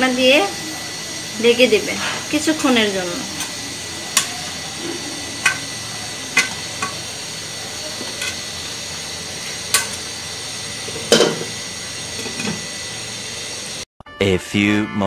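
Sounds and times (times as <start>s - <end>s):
greens sizzling in a frying pan: 0.0s - 13.8s
metal spatula scraping a pan: 3.4s - 7.1s, 7.9s - 8.6s
metal clank: 4.1s - 7.1s, 8.0s - 8.4s, 9.7s - 10.0s, 10.9s - 11.6s, 12.2s - 12.6s.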